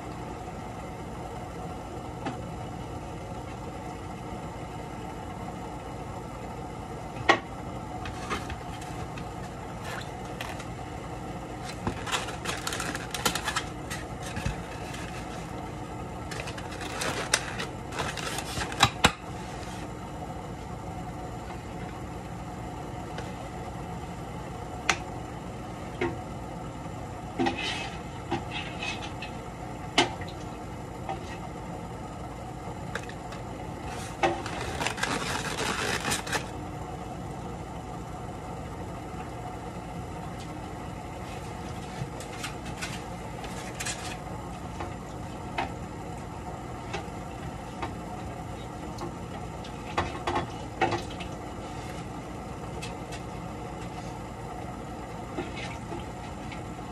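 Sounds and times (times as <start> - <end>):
steady low hum: 0.0 - 56.9
foam rubbing and creaking: 11.6 - 15.6, 16.3 - 19.9, 33.8 - 36.5.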